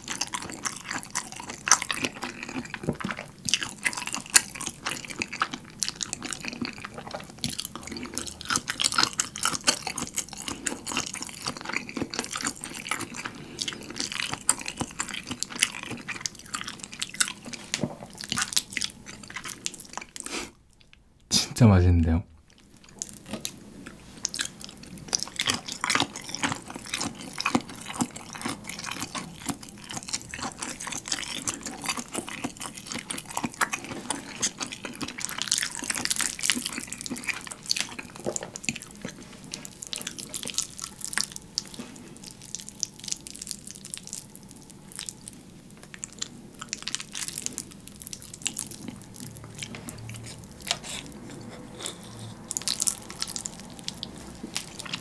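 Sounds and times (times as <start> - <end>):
wet mouth sounds eating noodles: 46.1 - 55.0.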